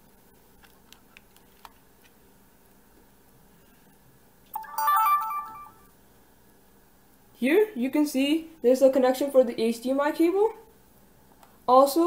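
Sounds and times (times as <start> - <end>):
camcorder power-on jingle: 4.6 - 5.8.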